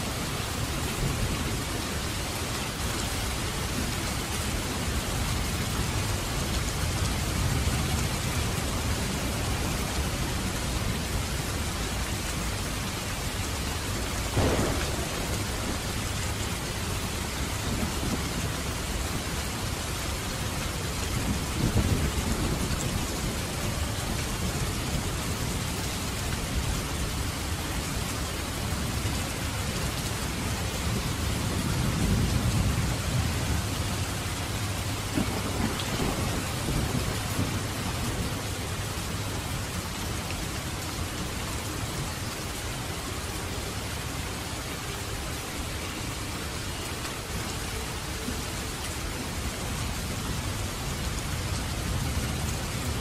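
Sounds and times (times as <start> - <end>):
steady rain: 0.0 - 53.0
sharp thunder crack: 14.3 - 16.4
thunder rumbling: 14.3 - 19.4, 21.0 - 25.7, 30.8 - 39.6.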